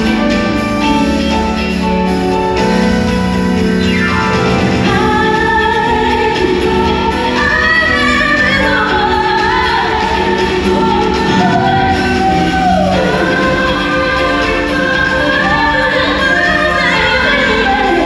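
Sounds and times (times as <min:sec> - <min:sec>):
band accompaniment: 0:00.0 - 0:18.0
woman singing live: 0:04.8 - 0:18.0.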